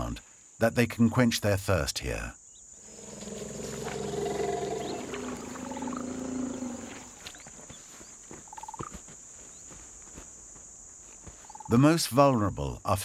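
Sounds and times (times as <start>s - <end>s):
elephant rumbling: 2.7s - 7.7s.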